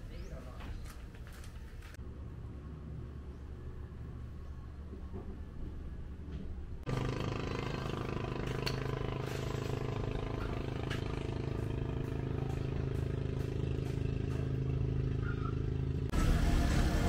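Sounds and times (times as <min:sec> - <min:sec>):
small engine running: 0:06.9 - 0:17.0.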